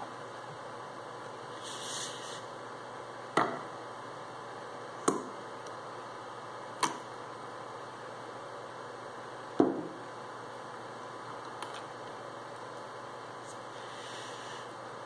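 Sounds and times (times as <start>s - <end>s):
steady hiss: 0.6s - 4.7s, 12.2s - 15.0s.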